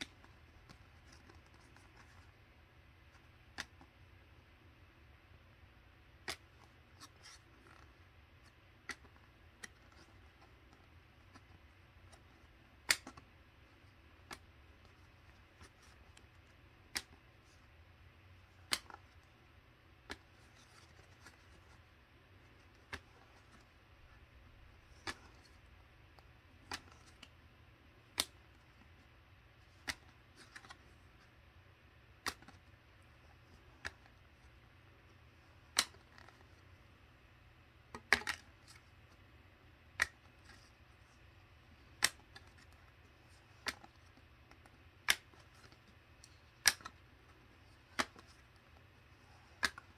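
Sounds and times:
cards clicking as flipped: 0.0 - 2.4, 6.2 - 7.9, 8.8 - 13.3, 14.2 - 17.6, 18.5 - 19.4, 20.0 - 27.4, 28.0 - 29.0, 29.6 - 31.3, 32.1 - 34.6, 35.4 - 36.7, 37.9 - 38.9, 39.9 - 41.2, 41.8 - 49.9
faint low hum: 0.0 - 49.9.

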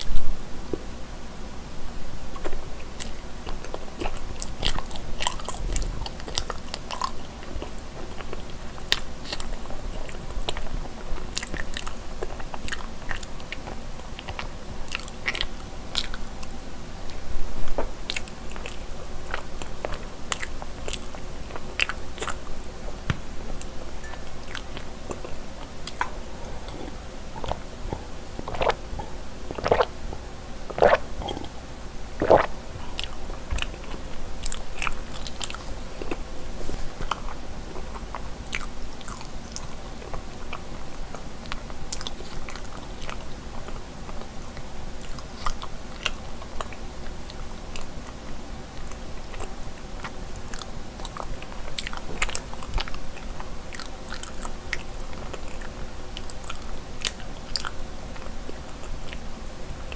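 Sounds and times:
close chewing with wet mouth clicks: 2.3 - 22.6, 23.6 - 31.6, 32.2 - 36.3, 37.0 - 59.3
gulping drink: 23.6 - 36.2.

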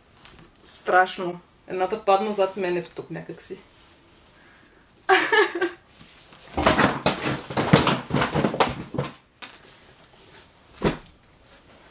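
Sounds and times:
books and clothing rustling and thumping: 6.0 - 11.9.

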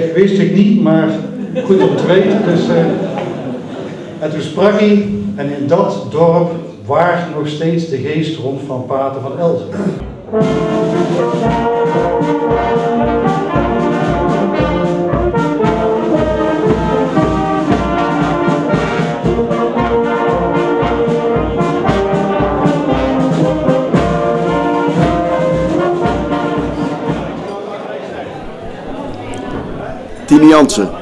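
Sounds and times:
brass band playing: 0.0 - 6.6, 10.0 - 27.5.

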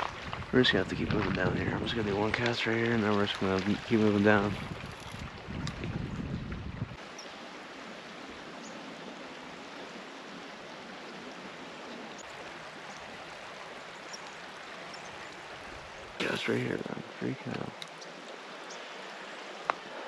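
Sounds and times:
river flowing over rocks: 7.0 - 20.0.

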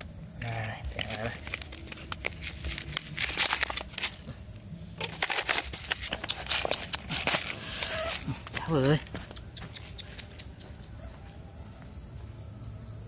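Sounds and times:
plastic crinkling: 0.8 - 4.3, 5.0 - 9.0.

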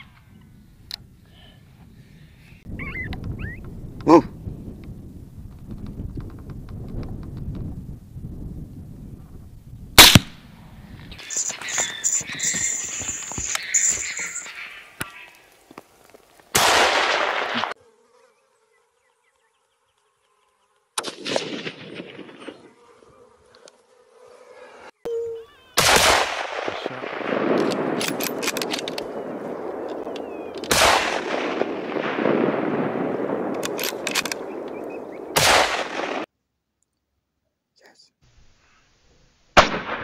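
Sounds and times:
rifle shots with echo: 10.0 - 10.4, 16.6 - 17.7, 21.0 - 22.6, 25.8 - 36.3, 39.6 - 40.0.

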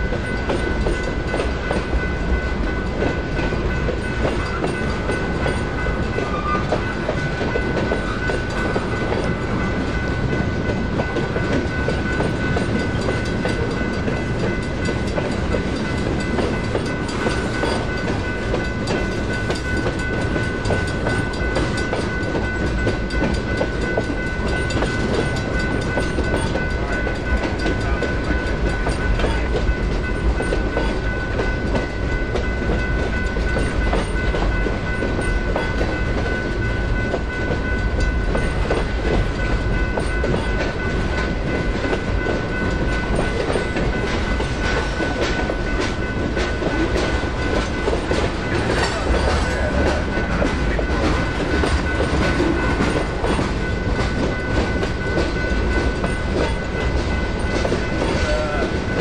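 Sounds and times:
crossing bell ringing: 0.0 - 59.0
train wheels clacking over rail joints: 0.0 - 59.0.

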